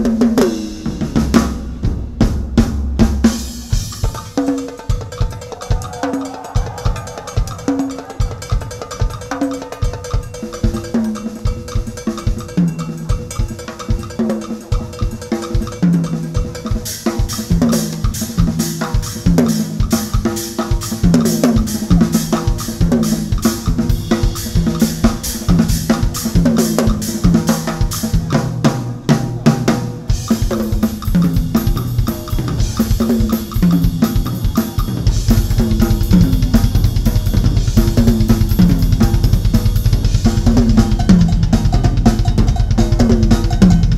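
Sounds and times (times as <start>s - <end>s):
rapid bass drum strokes: 0.0s - 9.3s, 17.5s - 43.9s
cymbals: 0.0s - 43.9s.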